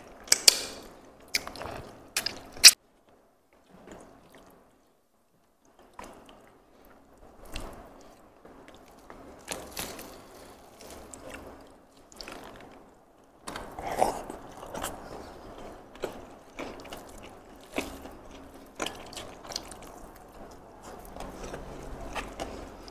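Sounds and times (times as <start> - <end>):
biting and chewing: 0.2 - 2.8, 7.4 - 22.9.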